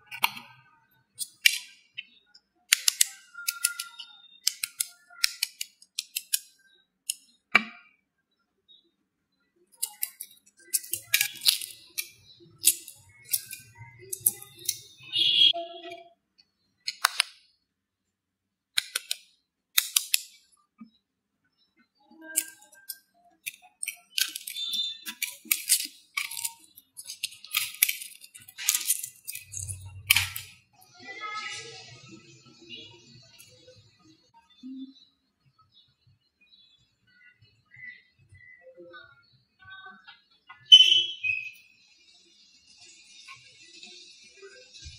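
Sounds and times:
eggshell crackling: 9.8 - 15.0, 22.3 - 30.5.

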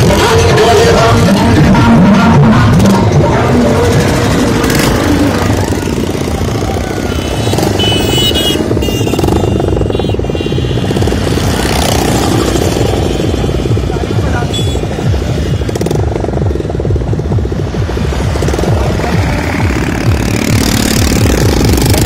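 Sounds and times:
motorcycle engines rumbling: 0.0 - 22.0
music: 14.2 - 22.0.

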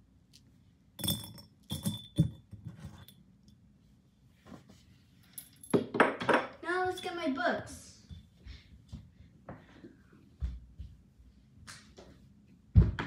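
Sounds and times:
hair ties clinking in glass jar: 1.0 - 3.1.

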